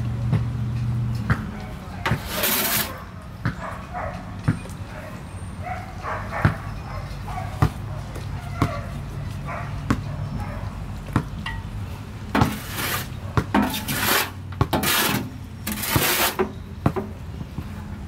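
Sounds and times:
tool scraping in wheelbarrow: 0:02.1 - 0:03.0, 0:12.4 - 0:16.6.

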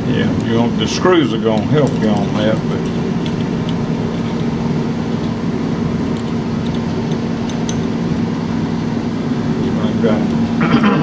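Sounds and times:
low mechanical hum: 0:00.0 - 0:11.0
small screws clicking: 0:06.1 - 0:08.0.

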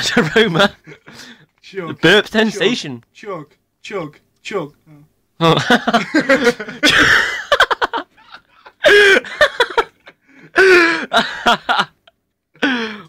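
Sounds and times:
young men laughing: 0:00.0 - 0:01.3, 0:05.4 - 0:12.1.

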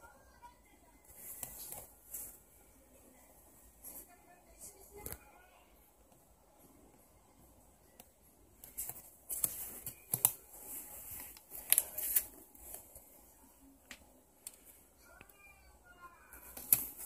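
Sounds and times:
newspaper rustling: 0:08.7 - 0:13.1.

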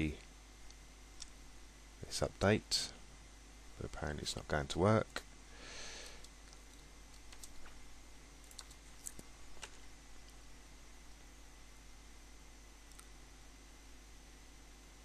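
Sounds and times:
low steady hum: 0:00.0 - 0:15.0
keyboard and mouse clicks: 0:06.1 - 0:07.8, 0:08.4 - 0:09.8.

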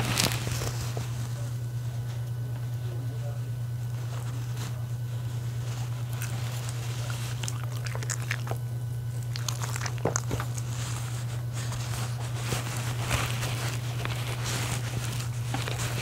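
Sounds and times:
steady low hum: 0:00.0 - 0:16.0
dog chewing food: 0:03.9 - 0:16.0.

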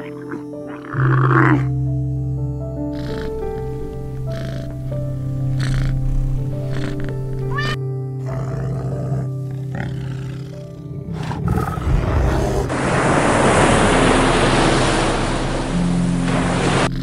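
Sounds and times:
bear growling: 0:00.0 - 0:01.8, 0:02.8 - 0:12.7
ambient synth music: 0:00.0 - 0:17.0
cat meowing: 0:07.4 - 0:07.8
surf breaking on beach: 0:11.8 - 0:17.0.

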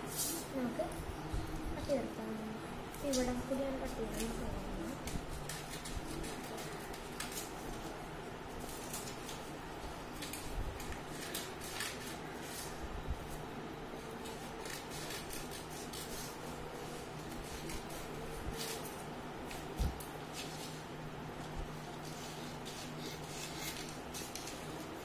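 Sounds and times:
scissors cutting paper: 0:03.1 - 0:07.9, 0:08.6 - 0:09.5, 0:10.1 - 0:12.8, 0:14.0 - 0:20.8, 0:21.8 - 0:24.9.

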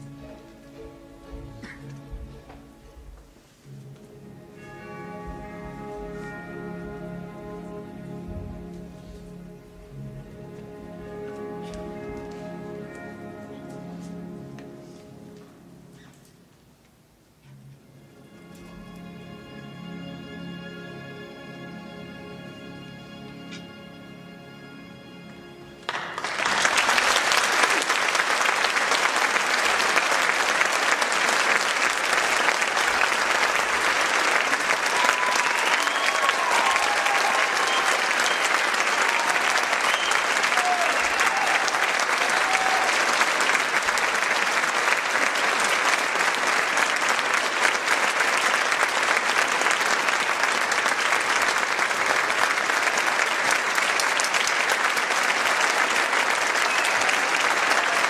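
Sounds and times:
music: 0:00.0 - 0:58.0
audience applauding: 0:25.8 - 0:58.0.

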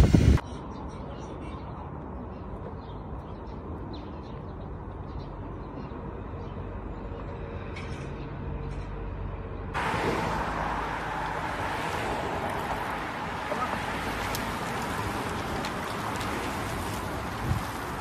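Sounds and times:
loud rushing noise: 0:09.8 - 0:13.4.

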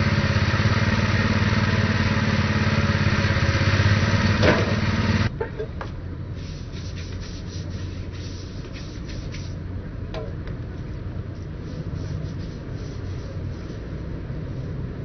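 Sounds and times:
small engine idling: 0:00.0 - 0:05.3.

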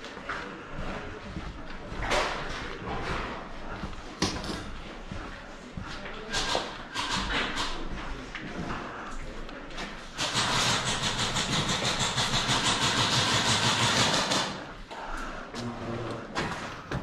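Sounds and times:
airsoft gun full auto burst: 0:10.2 - 0:14.6.

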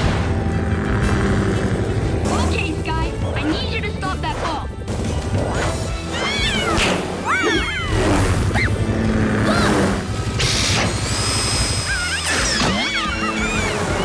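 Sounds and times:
cartoon action music: 0:00.0 - 0:14.0
mechanical sound effects: 0:09.3 - 0:14.0.

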